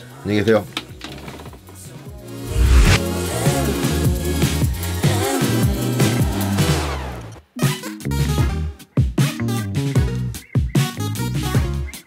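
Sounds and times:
music with bass and drum beat: 8.1s - 12.0s.

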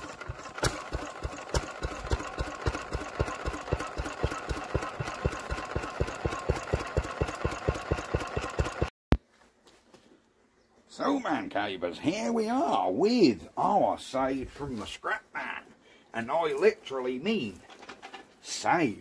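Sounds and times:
small stationary engine running: 0.0s - 8.9s.

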